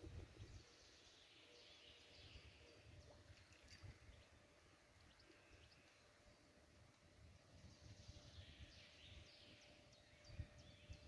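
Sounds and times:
faint distant birdsong: 0:00.0 - 0:11.0.

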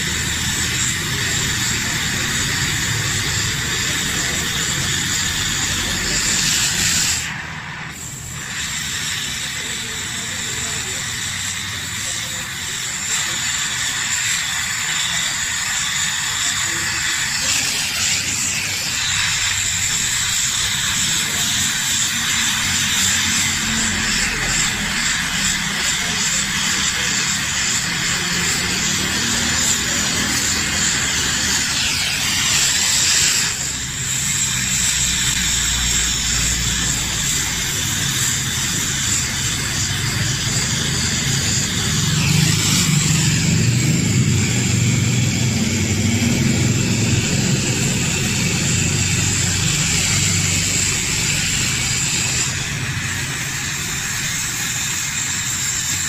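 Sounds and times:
gas torch flame hissing: 0:00.0 - 0:56.0.

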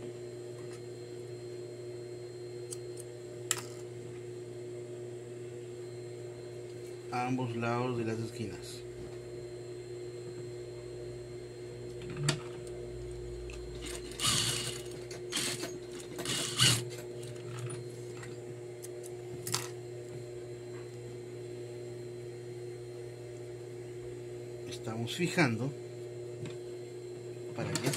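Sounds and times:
sewing machine motor humming: 0:13.7 - 0:17.7
sewing machine stitching: 0:13.8 - 0:17.0.

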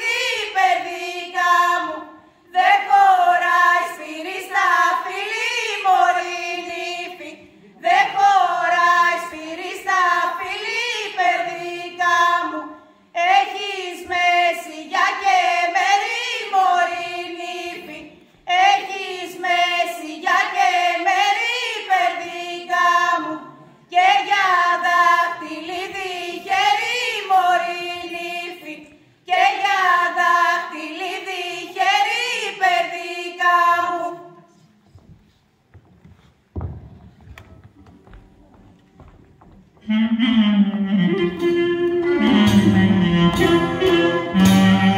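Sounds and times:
women singing in unison: 0:00.0 - 0:34.6.

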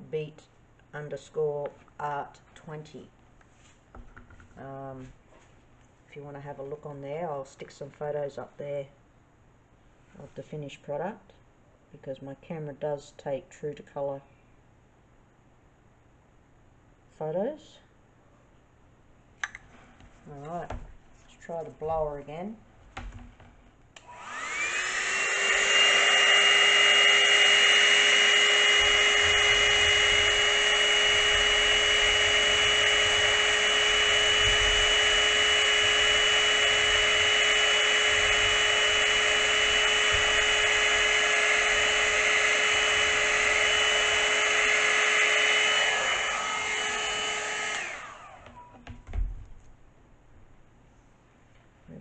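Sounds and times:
electric blower motor whine: 0:24.0 - 0:49.1.

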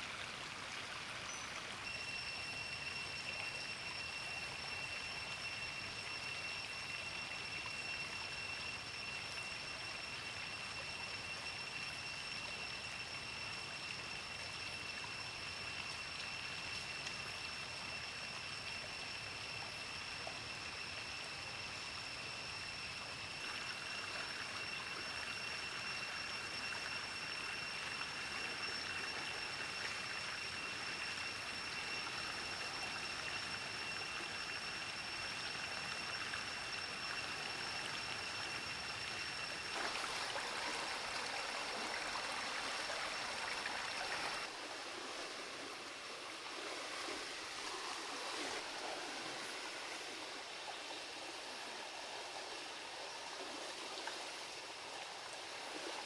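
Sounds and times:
high-pitched whine: 0:00.0 - 0:56.0
stream running: 0:00.0 - 0:56.0.

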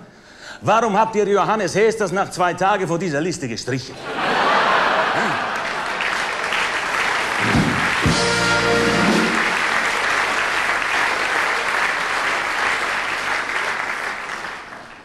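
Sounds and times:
audience applauding: 0:04.3 - 0:15.0
short band fanfare: 0:07.4 - 0:10.2.

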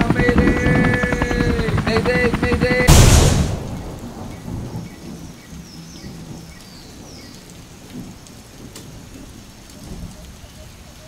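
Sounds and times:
rumbling hissing crash: 0:02.9 - 0:04.9.

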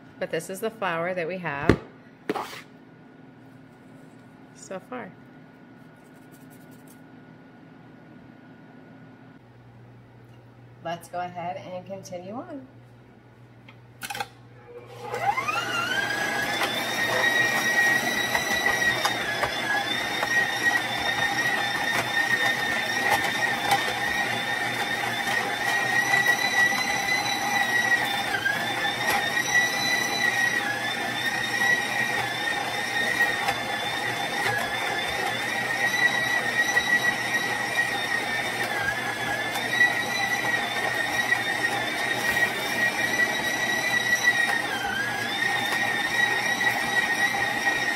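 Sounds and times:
stand mixer motor whining: 0:14.1 - 0:47.9
grain mill grinding pods: 0:14.8 - 0:47.9.

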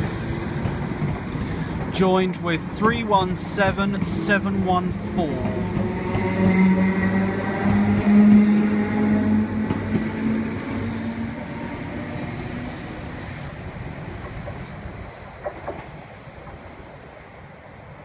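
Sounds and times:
train running noise: 0:00.0 - 0:17.1.

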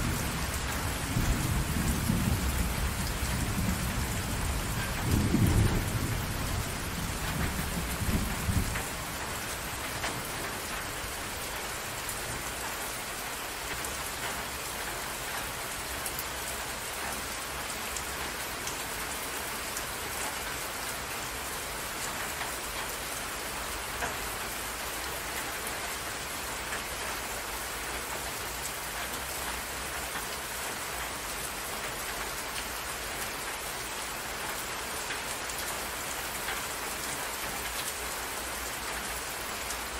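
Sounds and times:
thunder rumble: 0:00.0 - 0:11.5
rain falling on water: 0:00.0 - 0:39.9.

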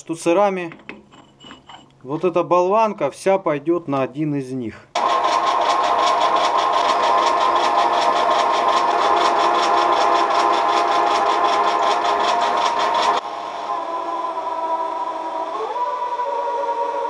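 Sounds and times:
metal lathe whining: 0:05.0 - 0:17.0.

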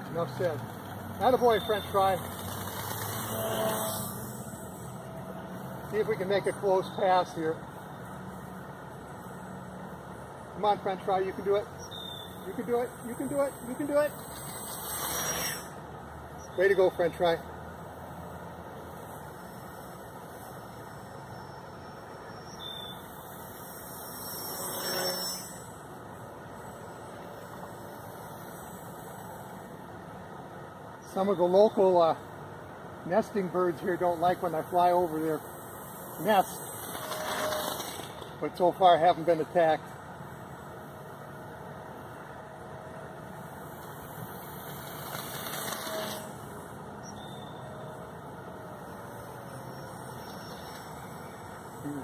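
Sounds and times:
electric motor propeller whining: 0:00.0 - 0:31.5, 0:33.8 - 0:38.4, 0:39.3 - 0:52.0
steady background hiss: 0:00.0 - 0:52.0.

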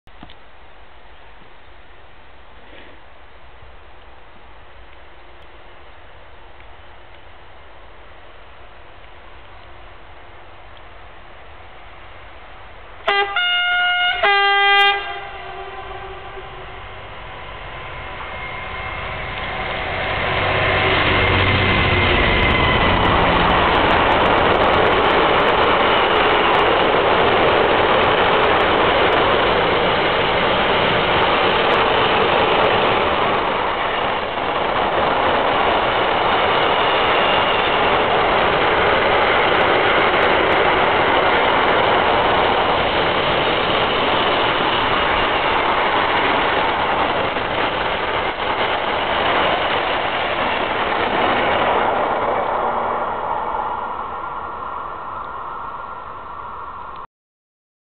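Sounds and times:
train wheels clattering on rails: 0:18.2 - 0:52.8.

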